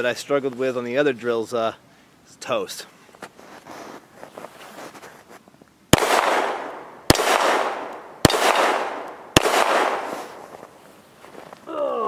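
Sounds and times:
pistol shots with echo: 5.9s - 10.5s.

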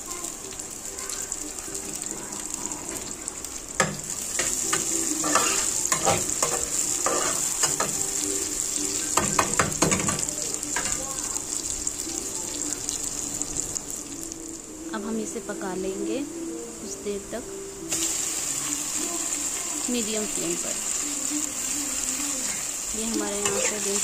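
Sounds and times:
vegetables sizzling in oil: 0.0s - 24.0s
metal spatula scraping a pan: 4.4s - 8.0s, 23.3s - 24.0s.

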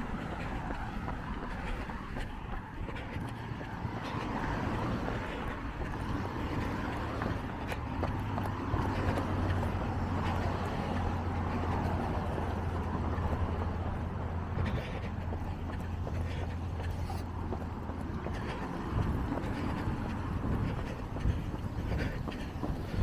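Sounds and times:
cars driving past: 0.0s - 23.0s.

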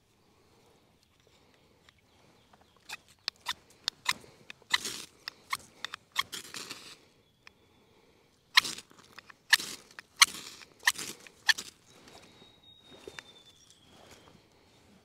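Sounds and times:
knife scraping ferro rod: 2.9s - 7.0s, 8.6s - 11.8s.

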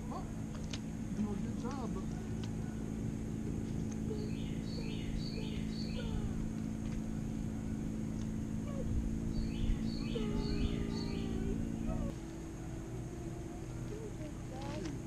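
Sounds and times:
songbird singing: 0.0s - 15.0s
steady low hum: 0.0s - 15.0s.

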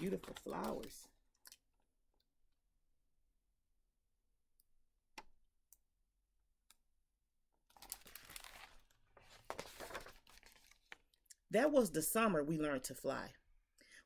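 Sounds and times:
book pages rustling: 7.7s - 11.1s.

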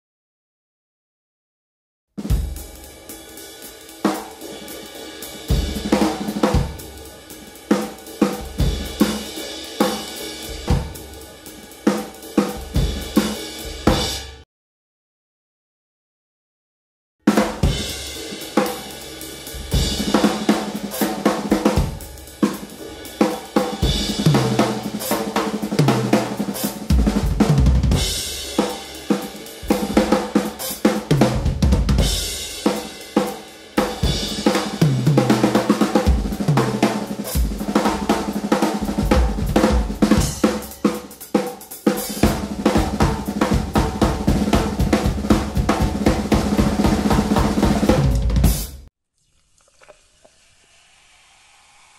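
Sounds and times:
drum kit playing busy beat: 2.2s - 14.4s, 17.3s - 48.9s.

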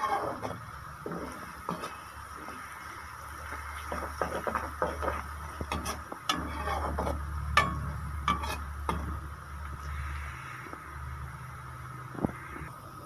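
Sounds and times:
onions sizzling in a pot: 0.0s - 12.6s
steady low hum: 0.0s - 13.0s
metal spoon scraping and clinking: 3.9s - 9.1s.

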